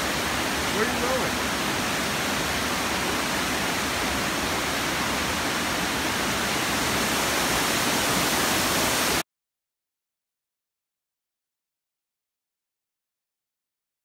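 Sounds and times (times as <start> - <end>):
waterfall roaring: 0.0 - 9.2.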